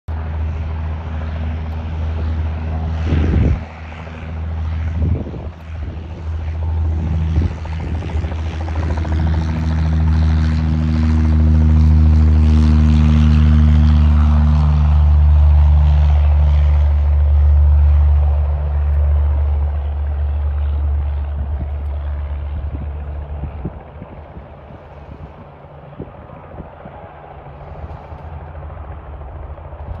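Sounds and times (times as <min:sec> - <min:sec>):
propeller plane engine drone: 0:00.1 - 0:30.0.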